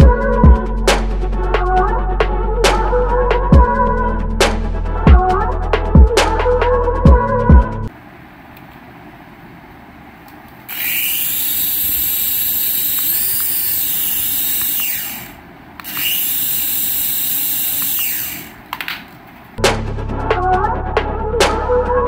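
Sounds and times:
toy helicopter motor whine: 10.7s - 18.6s.

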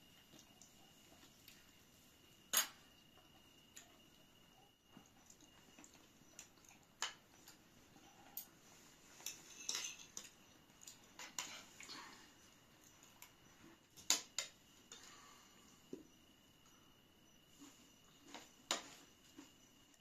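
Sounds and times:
spoons clinking on plates and glasses: 9.2s - 11.7s.

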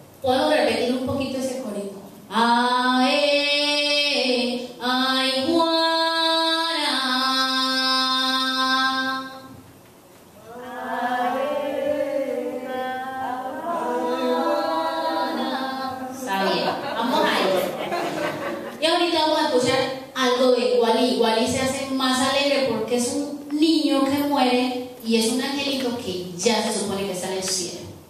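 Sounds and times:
unaccompanied voice singing: 10.4s - 16.3s.

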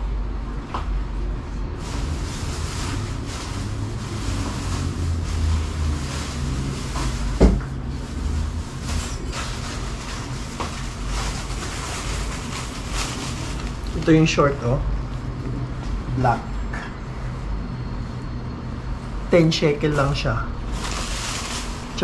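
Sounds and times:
steady low rumble: 0.0s - 22.0s
shopping bag rustling: 1.8s - 14.5s, 20.6s - 22.0s.

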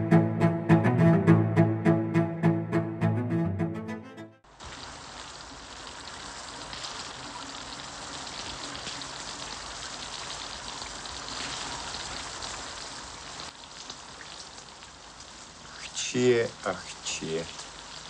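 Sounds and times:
heavy rain falling: 4.5s - 13.7s
rain splashing into puddles: 4.5s - 18.0s
water dripping off eaves: 4.5s - 18.0s.

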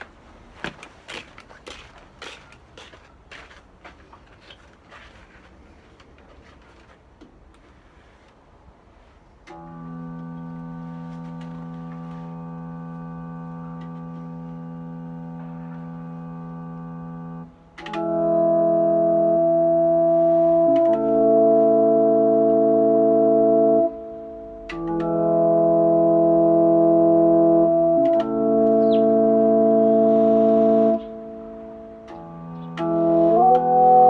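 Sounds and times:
electric guitar chords: 9.5s - 34.0s.

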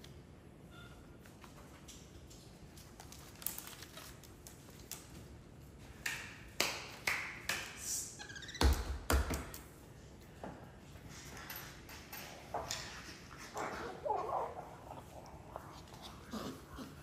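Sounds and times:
monkey squeak: 8.2s - 8.7s.

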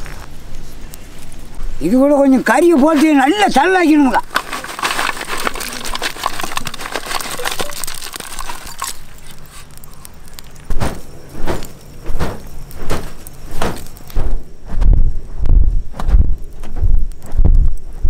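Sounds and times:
charcoal clattering onto embers: 1.2s - 14.2s
soft thumps: 10.7s - 17.7s.

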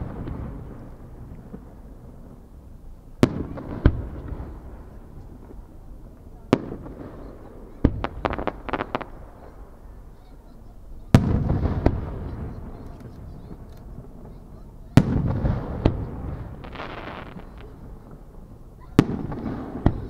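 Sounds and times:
crackling firework pops: 0.0s - 9.8s, 11.0s - 20.0s
firework shells bursting: 0.0s - 9.9s, 15.0s - 20.0s.

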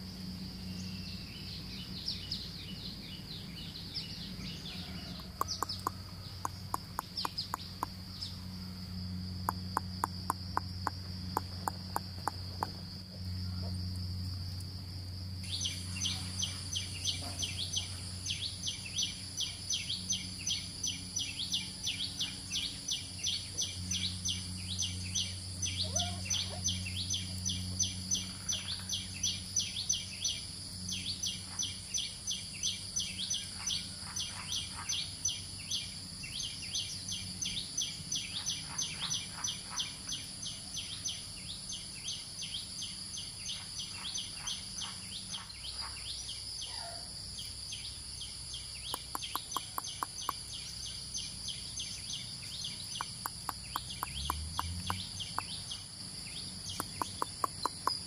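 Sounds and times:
rapid high-pitched chirping: 48.9s - 50.8s, 56.4s - 58.0s.

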